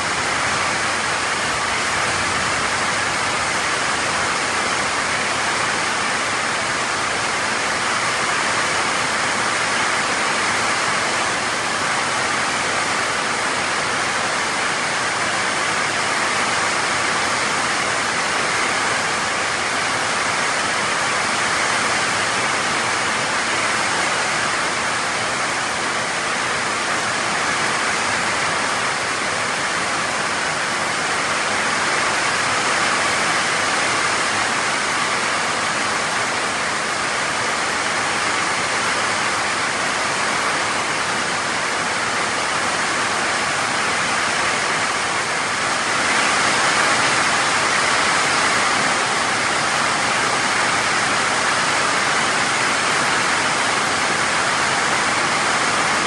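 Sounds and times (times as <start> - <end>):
heavy rain on foliage: 0.0 - 56.0.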